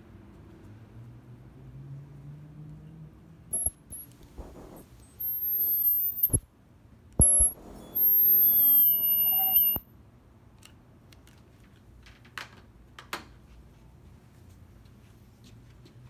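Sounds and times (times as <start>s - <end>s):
ultrasonic welder high-pitched whine: 3.5s - 6.4s, 7.2s - 9.8s
welder clicks: 4.4s - 6.4s.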